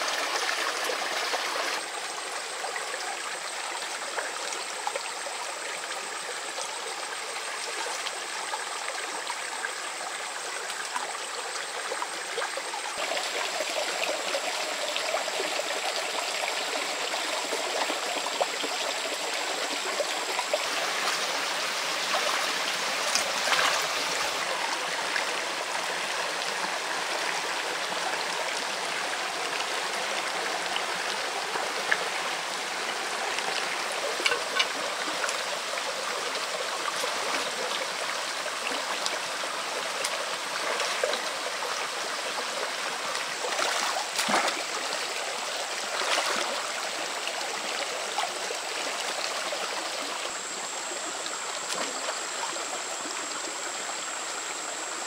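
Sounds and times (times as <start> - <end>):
stream water rushing: 0.0 - 55.0.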